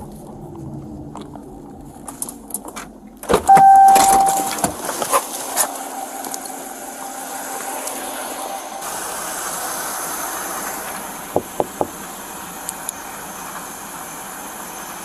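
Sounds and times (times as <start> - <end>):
roadside hiss and hum: 0.0 - 15.0
car door opening: 3.2 - 4.8
steady tone: 3.5 - 4.6.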